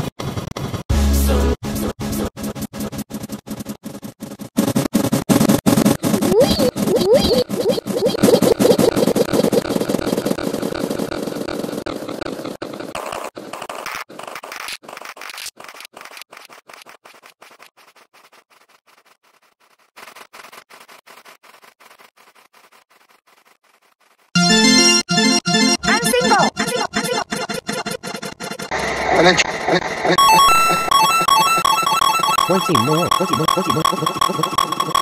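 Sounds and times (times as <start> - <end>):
jumble of overlapping sound clips: 5.9 - 14.6, 24.4 - 35.0.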